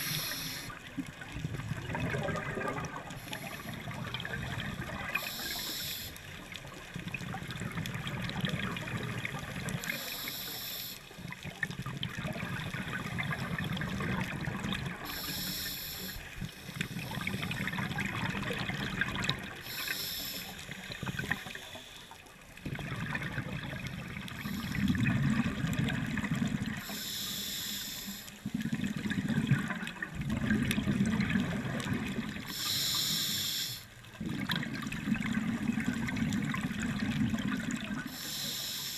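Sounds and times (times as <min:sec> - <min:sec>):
regulator hiss: 0:00.0 - 0:00.8, 0:05.1 - 0:06.2, 0:09.8 - 0:11.1, 0:15.0 - 0:17.8, 0:19.6 - 0:22.1, 0:26.8 - 0:28.4, 0:32.5 - 0:33.9, 0:38.1 - 0:38.9
bubbling exhaled air: 0:00.0 - 0:06.1, 0:11.5 - 0:21.8, 0:22.6 - 0:38.8.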